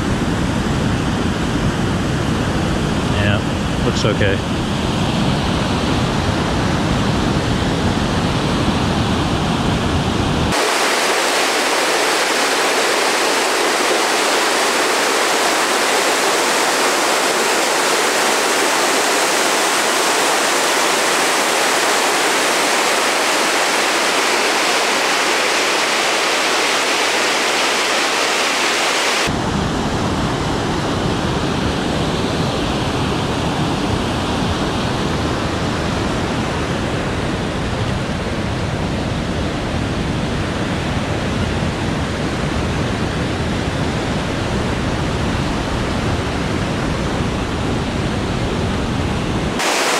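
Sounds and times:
water rushing over rocks: 0:10.5 - 0:29.4, 0:49.6 - 0:49.9.

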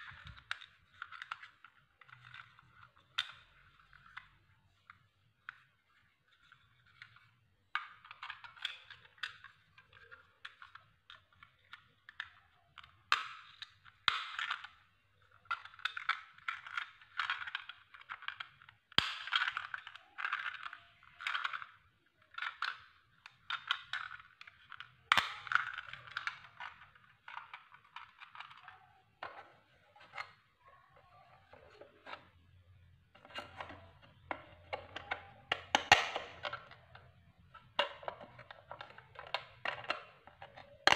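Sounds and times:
plastic parts clicking and rattling: 0:00.0 - 0:40.9
sharp plastic snaps: 0:33.3 - 0:37.1.

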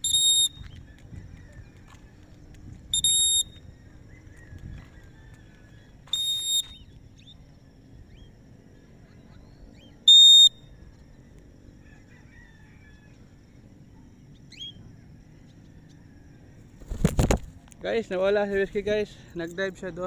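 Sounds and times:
high whistle blasts: 0:00.0 - 0:00.7, 0:02.9 - 0:03.7, 0:06.0 - 0:06.9, 0:10.0 - 0:10.7
faint bird chirps: 0:00.0 - 0:16.7.

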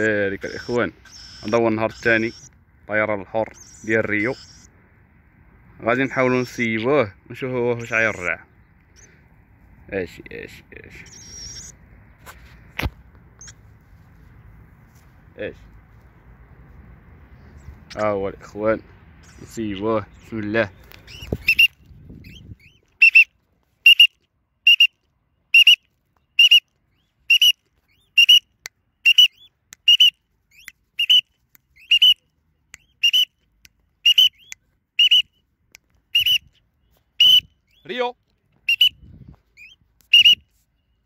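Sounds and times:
cockatiel contact calls: 0:00.4 - 0:02.5, 0:20.8 - 0:23.3.

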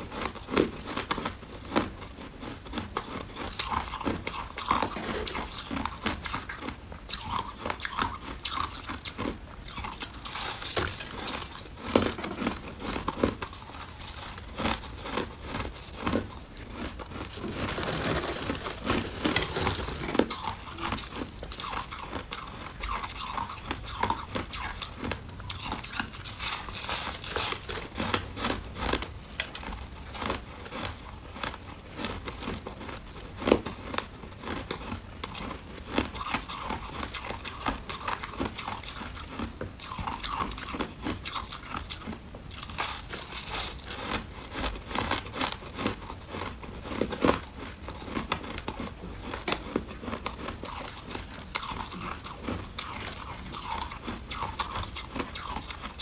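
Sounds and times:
biting and chewing ice: 0:00.0 - 0:56.0
gloved hands crumpling ice: 0:17.1 - 0:21.8.

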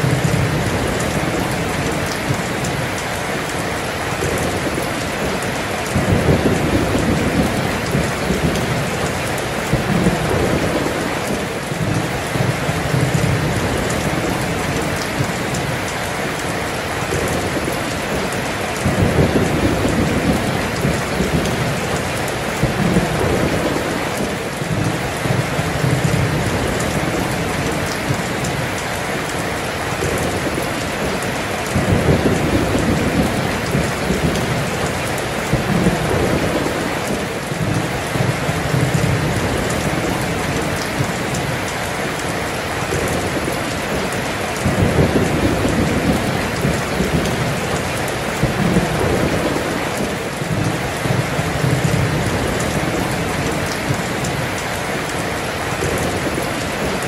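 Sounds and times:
heavy rain pouring: 0:00.0 - 0:57.0
thunder rumbling: 0:00.0 - 0:57.0.

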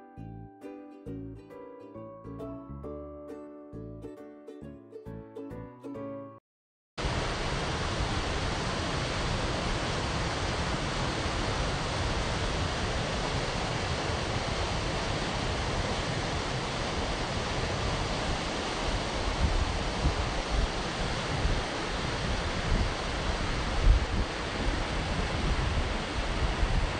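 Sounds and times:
stream rushing over rocks: 0:07.0 - 0:26.9
wind buffeting microphone: 0:07.1 - 0:26.9.

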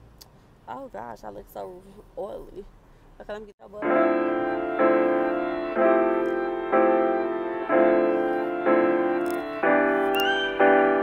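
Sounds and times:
piano chords: 0:03.6 - 0:11.0.

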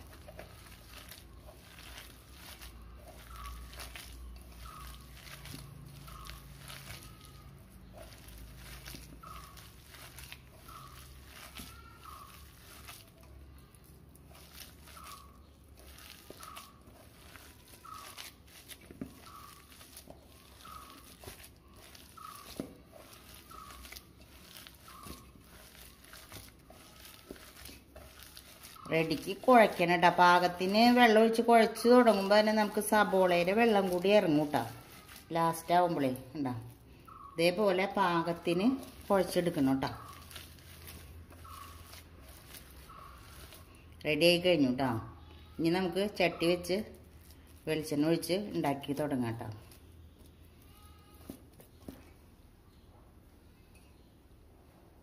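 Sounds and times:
hands kneading dough: 0:00.0 - 0:52.4.

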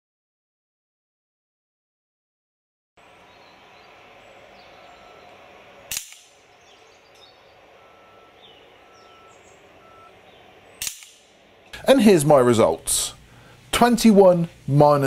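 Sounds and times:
air rifle shots: 0:05.9 - 0:06.5, 0:10.8 - 0:11.6.

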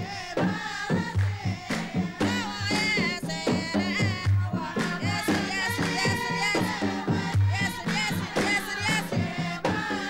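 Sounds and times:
barrel drums beaten: 0:00.0 - 0:10.0
voices singing: 0:00.0 - 0:10.0
sharp handclaps: 0:00.5 - 0:10.0.

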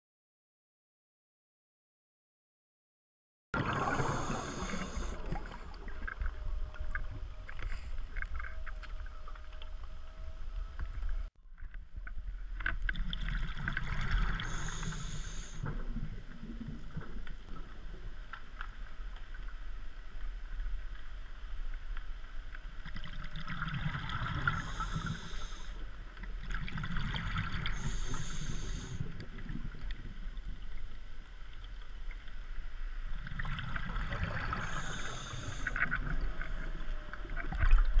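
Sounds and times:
exhaled air bubbling: 0:03.6 - 0:09.1, 0:12.8 - 0:17.8, 0:22.8 - 0:25.7, 0:26.4 - 0:30.7, 0:33.1 - 0:38.0
low water rumble: 0:03.6 - 0:38.0
regulator hissing inhale: 0:03.8 - 0:05.5, 0:14.4 - 0:15.7, 0:24.4 - 0:25.9, 0:27.6 - 0:29.2, 0:34.5 - 0:36.0.

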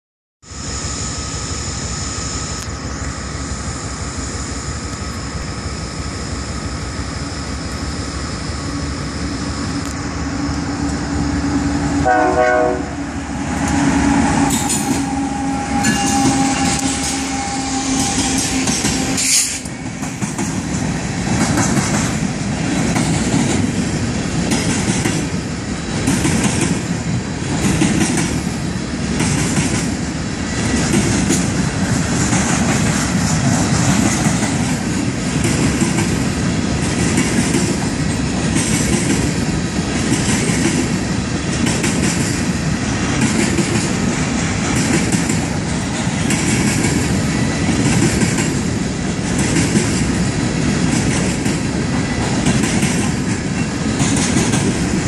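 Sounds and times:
diesel locomotive engines running: 0:00.4 - 0:55.0
train horn blast: 0:10.7 - 0:19.9
train wheels clickety-clack: 0:13.5 - 0:55.0.

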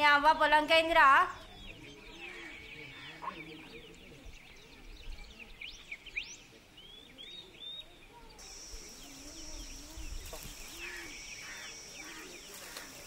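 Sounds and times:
small birds chirping: 0:01.0 - 0:13.0
steady high-pitched buzz: 0:08.4 - 0:12.9.

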